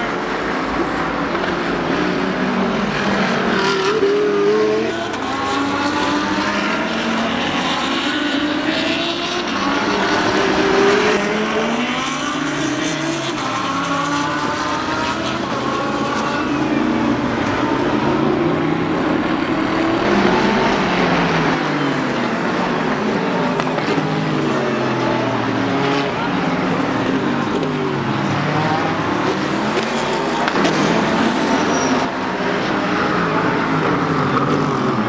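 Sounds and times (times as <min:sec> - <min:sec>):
race cars passing at speed: 0:00.0 - 0:35.0.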